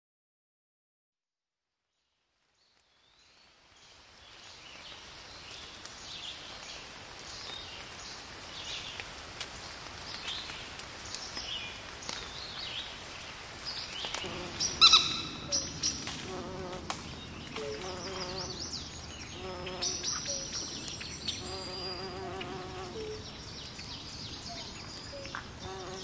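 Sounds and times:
rain falling on water: 2.2s - 26.0s
birds giving short high calls: 14.2s - 16.6s.

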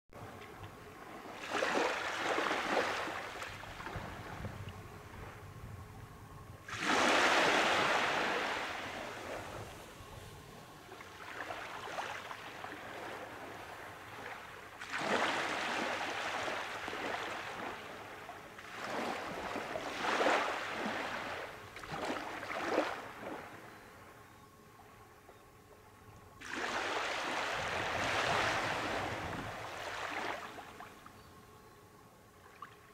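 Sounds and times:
small waves washing up beach: 1.0s - 4.5s, 6.6s - 23.5s, 26.4s - 30.9s.

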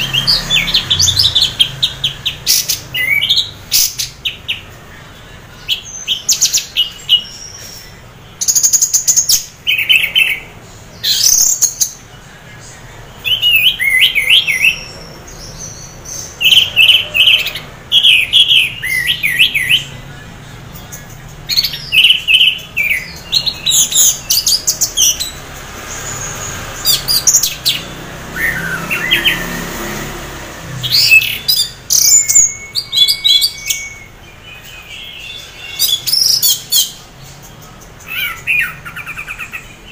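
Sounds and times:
thrush singing whistles and chirps: 5.6s - 30.0s, 30.6s - 39.9s.

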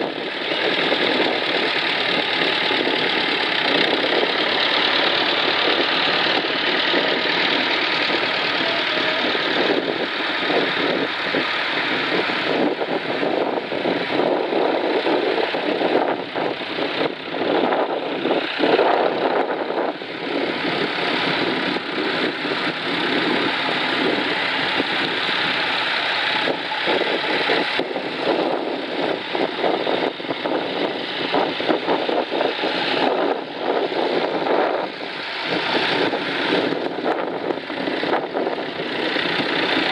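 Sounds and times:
tractor engines passing: 0.0s - 39.9s.

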